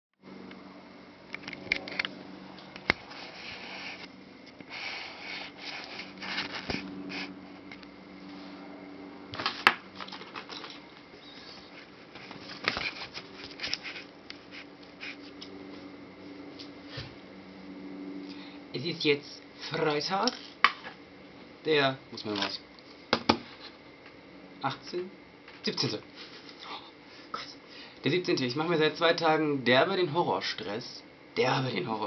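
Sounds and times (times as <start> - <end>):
steady low hum: 0.2 - 32.0
handling rustling: 9.4 - 15.3.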